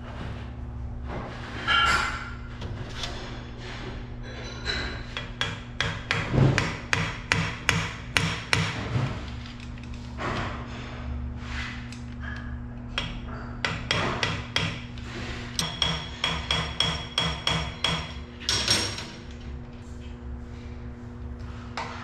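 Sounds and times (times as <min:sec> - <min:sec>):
steady low hum: 0:00.0 - 0:22.0
metal tool knocking on pump: 0:15.6 - 0:18.9.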